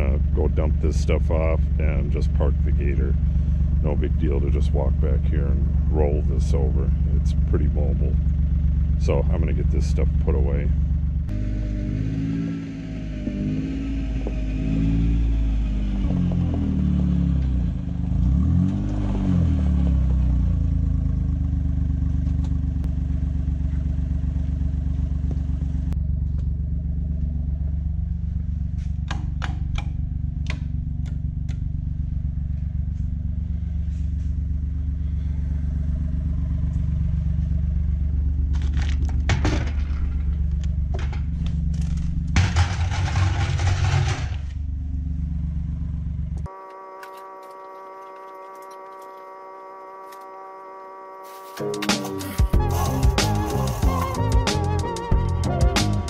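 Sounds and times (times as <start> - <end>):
utility vehicle engine running: 0.0 - 56.0
rattles and clatter: 36.4 - 44.7.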